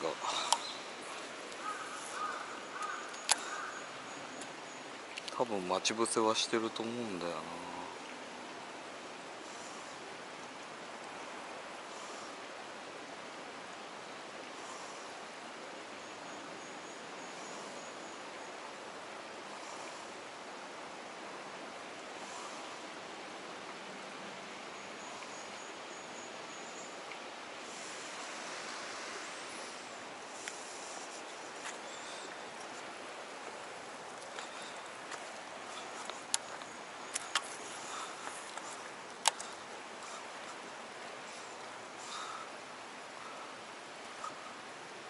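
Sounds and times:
stream rushing over rock: 0:00.0 - 0:45.0
faint clicks: 0:00.3 - 0:00.7, 0:01.5 - 0:03.7, 0:34.2 - 0:40.6.

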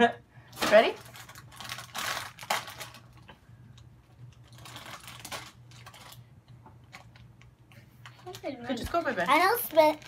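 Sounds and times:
toy package rustling and tearing: 0:00.6 - 0:03.3, 0:04.3 - 0:07.4, 0:08.0 - 0:10.0.

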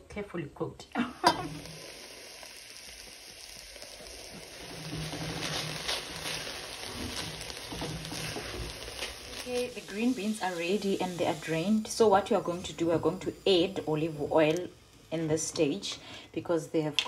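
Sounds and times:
vegetables sizzling in a pot: 0:01.0 - 0:17.0
spatula stirring: 0:03.8 - 0:14.7.

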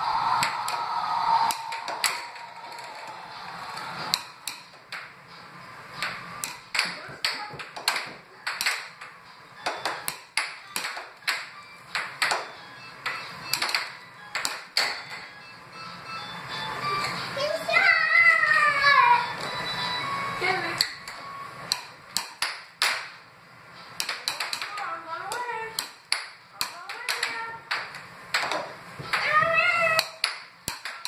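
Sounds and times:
background music: 0:00.0 - 0:07.2, 0:08.3 - 0:22.4
air hockey puck clacking: 0:01.5 - 0:03.1, 0:03.7 - 0:05.2, 0:05.9 - 0:15.3, 0:20.8 - 0:23.2, 0:23.9 - 0:31.0.

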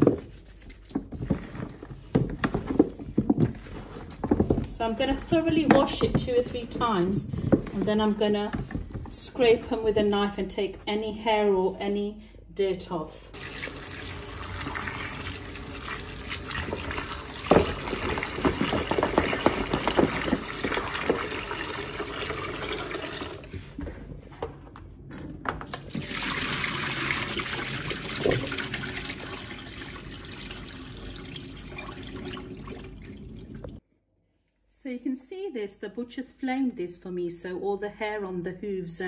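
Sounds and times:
hands rubbing and splashing in water: 0:00.0 - 0:01.6
tap water running into metal pot: 0:13.4 - 0:23.5, 0:25.7 - 0:33.8.

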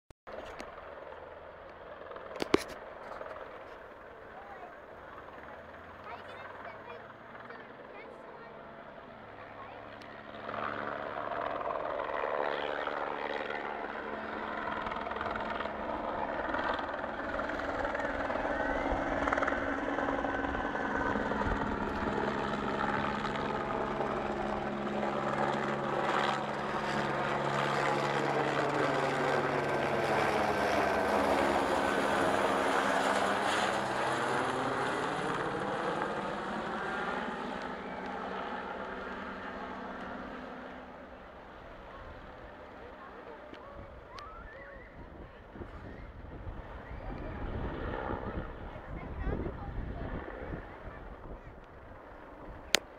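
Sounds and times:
helicopter flying past low: 0:00.3 - 0:52.9.

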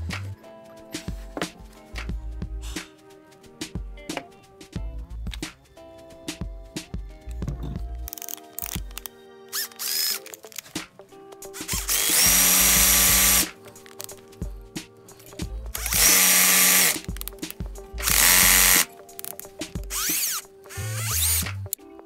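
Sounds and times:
background music: 0:00.0 - 0:22.0
cordless drill bursts: 0:09.5 - 0:10.2, 0:11.6 - 0:13.5, 0:15.8 - 0:17.0, 0:18.0 - 0:18.9, 0:19.9 - 0:21.4.

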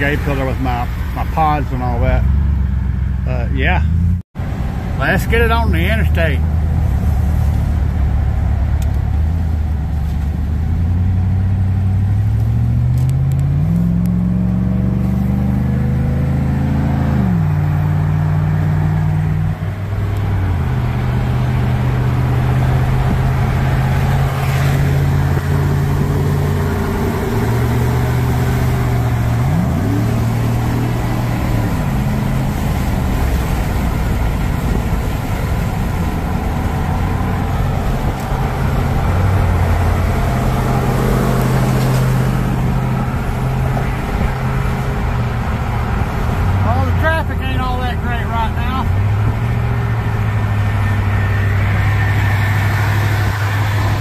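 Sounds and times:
car engine accelerating: 0:00.0 - 0:54.0
road and wind noise: 0:00.0 - 0:54.0.

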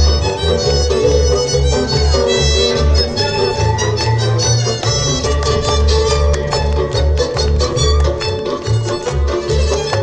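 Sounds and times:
violin playing dance tune: 0:00.0 - 0:10.0.

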